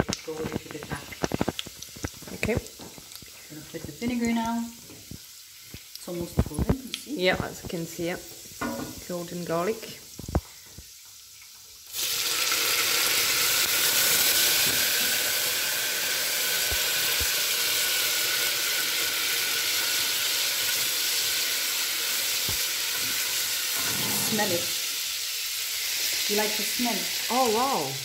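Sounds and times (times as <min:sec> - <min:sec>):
vinegar sizzling in hot oil: 0:00.0 - 0:28.0
wooden spoon stirring pot: 0:23.8 - 0:24.7.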